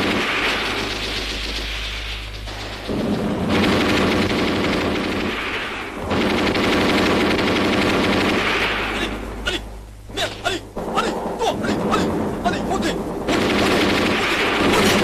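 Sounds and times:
machine-gun and rifle fire: 0:00.0 - 0:09.4, 0:10.1 - 0:15.0
single gunshots: 0:08.0 - 0:15.0.

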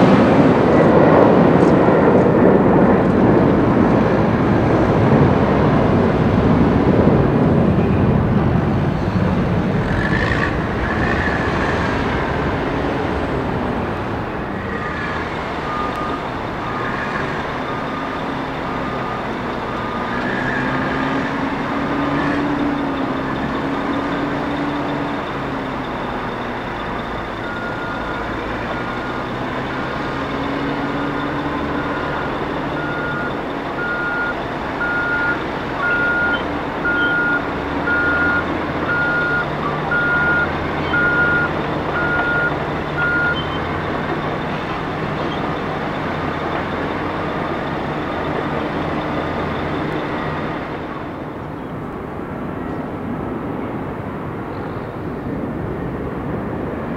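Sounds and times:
diesel engine of wheel loader: 0:00.0 - 0:56.9
backup alarms beeping: 0:15.6 - 0:50.6.

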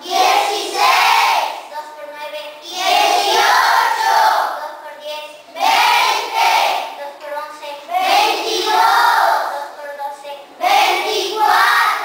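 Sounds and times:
children chanting in unison: 0:00.0 - 0:01.7, 0:02.6 - 0:04.6, 0:05.6 - 0:07.0, 0:07.9 - 0:09.6, 0:10.6 - 0:12.0.

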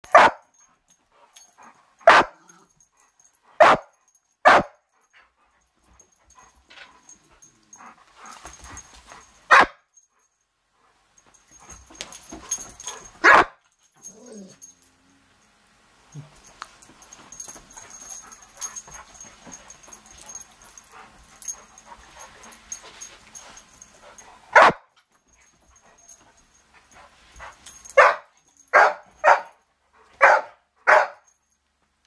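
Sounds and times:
dogs barking: 0:00.0 - 0:00.6, 0:02.0 - 0:02.6, 0:03.6 - 0:04.8, 0:09.5 - 0:09.8, 0:12.8 - 0:13.6, 0:24.5 - 0:24.9, 0:27.9 - 0:29.6, 0:30.2 - 0:31.3
dogs scuffling: 0:05.8 - 0:09.5, 0:11.2 - 0:14.8, 0:16.1 - 0:30.4
dog whine: 0:14.0 - 0:14.8.

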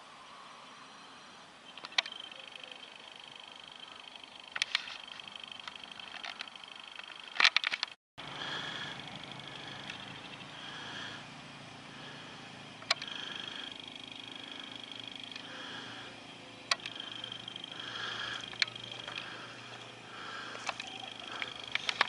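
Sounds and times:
sharp clicks: 0:01.7 - 0:02.2, 0:04.5 - 0:08.0, 0:09.8 - 0:10.4, 0:12.8 - 0:13.8, 0:15.1 - 0:15.6, 0:16.6 - 0:22.0
high-pitched trilling animal calls: 0:16.8 - 0:22.0.

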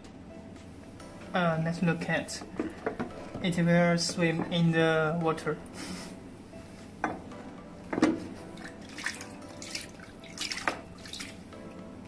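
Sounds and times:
water splashing in a plastic tub: 0:08.6 - 0:11.4.

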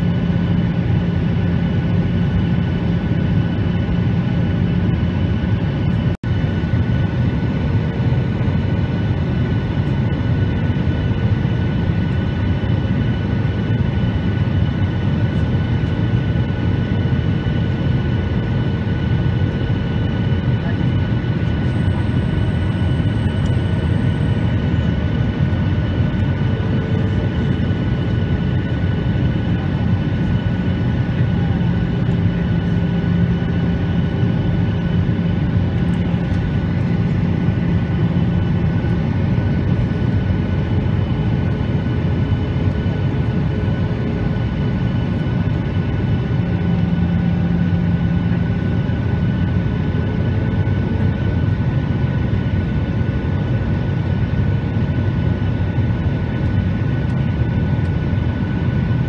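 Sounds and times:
jet airliner cabin noise: 0:00.0 - 0:59.0.

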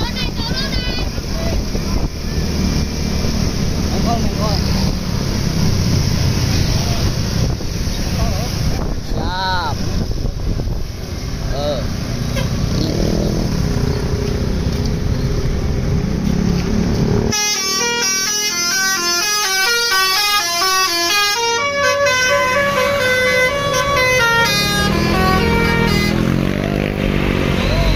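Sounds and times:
bus engine: 0:00.0 - 0:27.9
musical air horn melody: 0:17.3 - 0:26.4.

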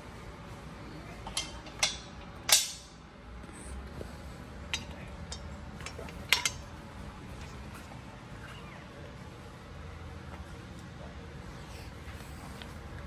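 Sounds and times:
metal parts clinking together: 0:04.7 - 0:06.6.

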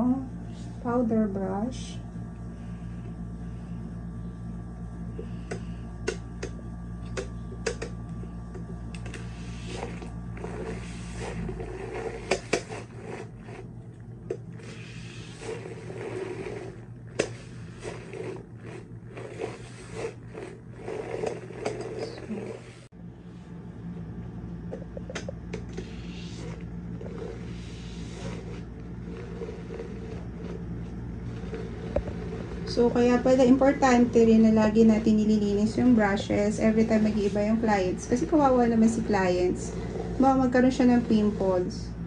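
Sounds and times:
motor whirring: 0:14.3 - 0:22.9
brush swishing in water: 0:14.6 - 0:22.9, 0:25.8 - 0:41.8.

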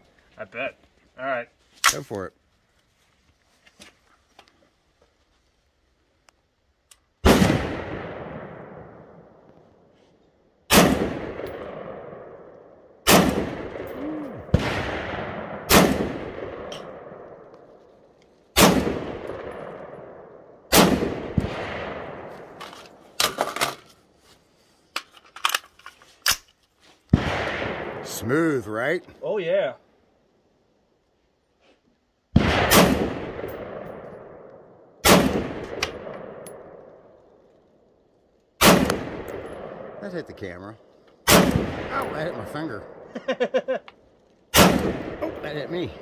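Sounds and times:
rifle shots with rolling echo: 0:07.2 - 0:09.9, 0:10.7 - 0:23.8, 0:27.1 - 0:28.9, 0:32.3 - 0:46.0.

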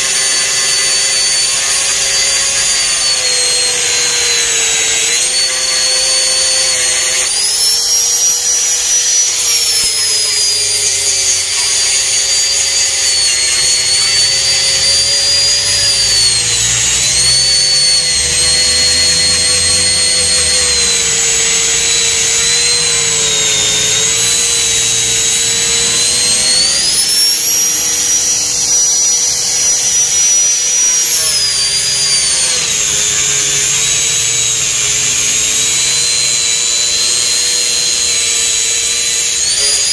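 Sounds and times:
angle grinder cutting: 0:00.0 - 0:39.9.

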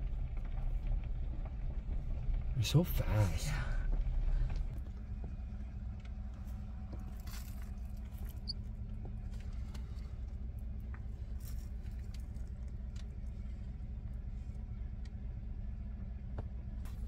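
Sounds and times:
vehicle engine rumbling: 0:00.0 - 0:17.0
faint clicks and rustles: 0:03.8 - 0:17.0.

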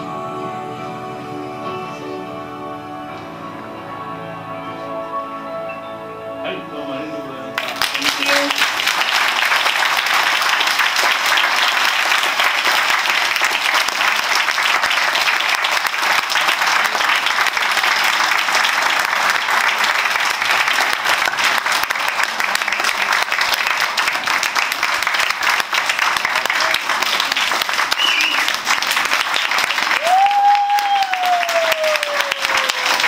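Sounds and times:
people applauding: 0:07.6 - 0:33.0.

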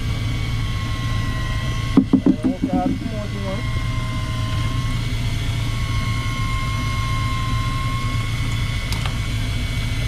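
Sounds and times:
boat engine idling: 0:02.0 - 0:03.5.

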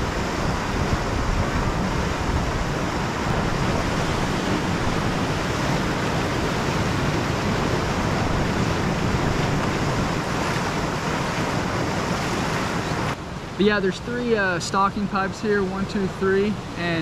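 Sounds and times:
wind rumble on microphone: 0:00.0 - 0:13.6
river water rushing: 0:00.0 - 0:17.0.

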